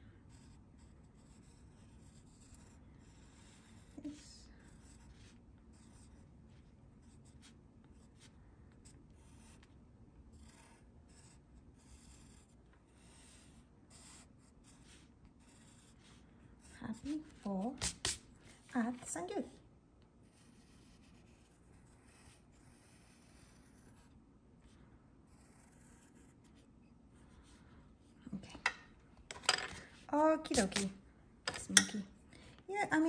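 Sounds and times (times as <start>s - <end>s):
pencil scratching on paper: 0.1s - 18.8s, 20.2s - 27.6s.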